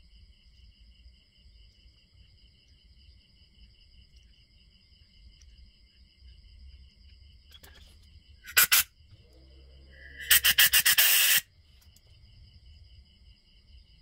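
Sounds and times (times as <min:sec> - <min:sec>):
crickets chirping: 0:00.0 - 0:14.0
spray can blasts and hiss: 0:08.5 - 0:08.9, 0:10.2 - 0:11.5.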